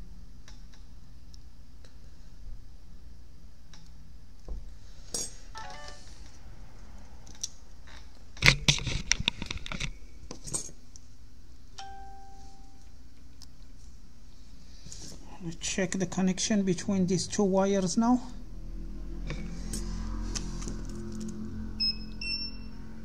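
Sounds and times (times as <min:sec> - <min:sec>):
electronic beep: 0:21.8 - 0:22.8.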